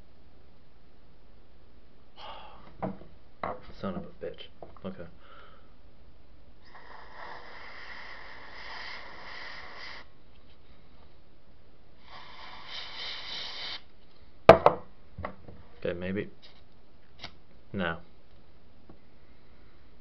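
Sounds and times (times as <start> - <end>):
person breathy exhalation: 2.2 - 2.7.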